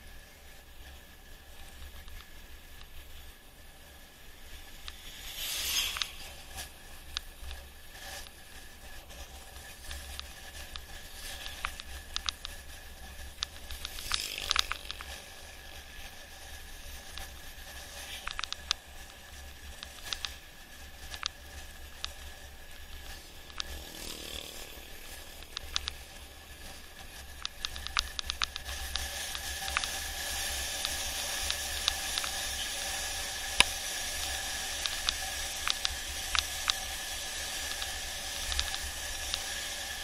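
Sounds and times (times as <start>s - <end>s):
bike clicks and rattles: 0.8s - 40.0s.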